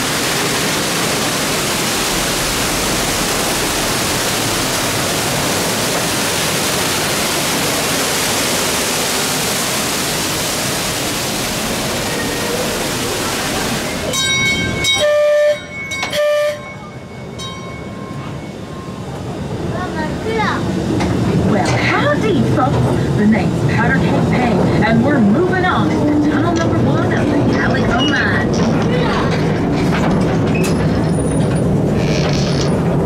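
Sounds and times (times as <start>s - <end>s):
waterfall rushing: 0.0s - 15.2s
train horn blasts: 14.8s - 16.8s.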